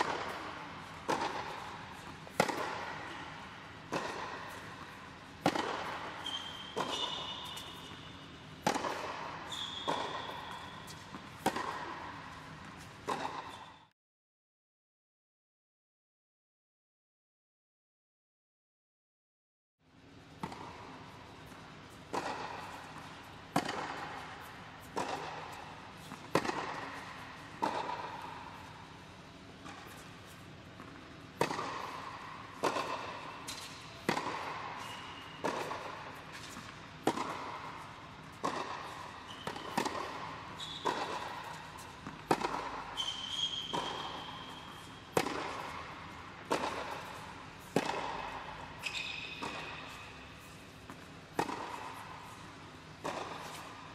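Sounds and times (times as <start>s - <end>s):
tennis ball bounces: 0.0s - 13.7s, 20.3s - 53.9s
tennis balls struck with rackets: 0.0s - 13.7s, 20.1s - 53.9s
short high squeaks: 6.2s - 8.0s, 43.0s - 44.9s.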